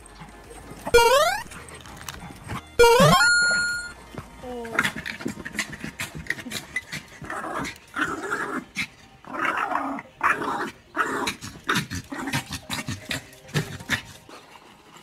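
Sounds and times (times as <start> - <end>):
puppy growling: 4.6 - 14.4.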